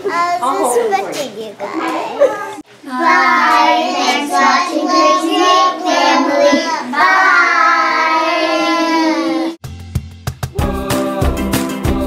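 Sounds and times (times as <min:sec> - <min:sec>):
children singing in unison: 0:02.9 - 0:09.6.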